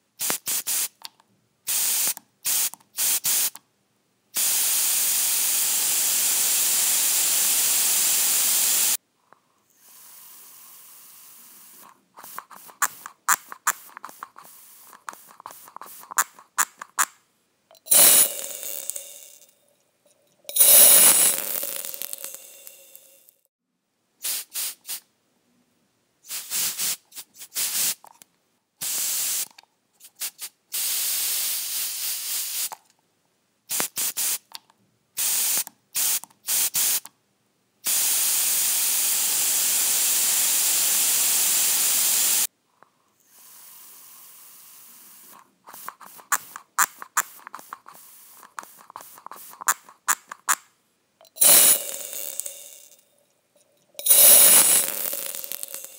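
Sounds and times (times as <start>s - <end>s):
aerosol can spraying: 0.2s - 1.1s, 1.7s - 3.6s, 4.4s - 9.0s, 9.8s - 17.0s, 17.8s - 19.6s, 20.5s - 23.2s, 24.2s - 25.0s, 26.3s - 28.1s, 28.8s - 29.5s, 30.1s - 32.8s, 33.7s - 34.5s, 35.2s - 37.1s, 37.9s - 42.5s, 43.4s - 50.5s, 51.2s - 53.0s, 54.0s - 55.9s.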